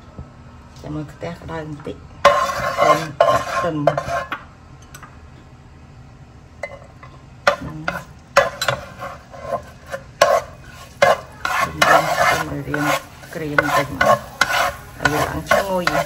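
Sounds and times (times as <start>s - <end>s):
garlic sizzling in oil: 2.2s - 4.3s, 7.4s - 16.0s
spatula scraping saucepan: 2.2s - 4.4s, 7.5s - 16.0s.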